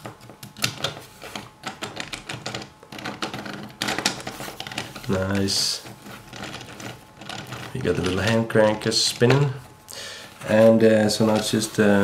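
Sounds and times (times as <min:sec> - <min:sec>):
plastic parts rattling: 0:00.4 - 0:09.6.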